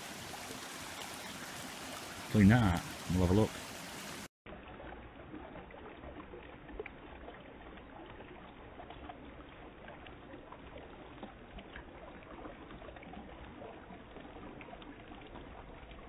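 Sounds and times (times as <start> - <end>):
river water rushing: 0.0 - 4.3.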